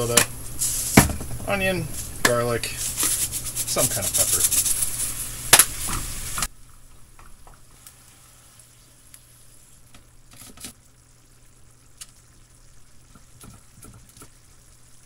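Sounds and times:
meat sizzling in a pan: 0:00.0 - 0:06.5, 0:07.6 - 0:10.0
low steady hum: 0:00.0 - 0:15.0.

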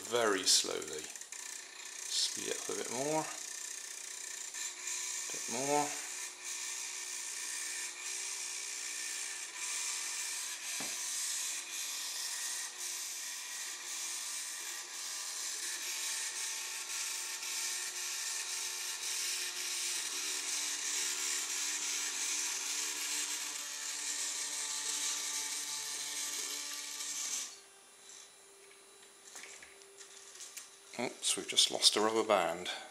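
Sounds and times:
toy motor whirring: 0:00.0 - 0:28.3.

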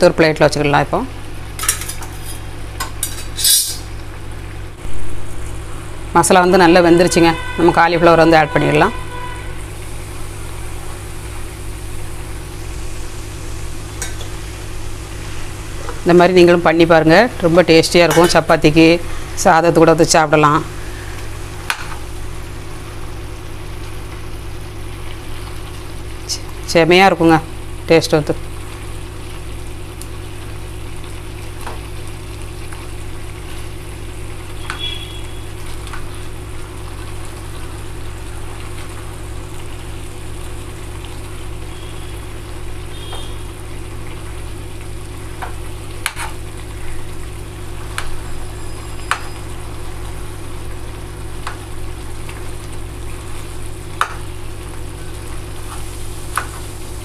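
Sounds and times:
gravy simmering and sizzling: 0:01.1 - 0:57.0
low hum: 0:04.6 - 0:07.5.

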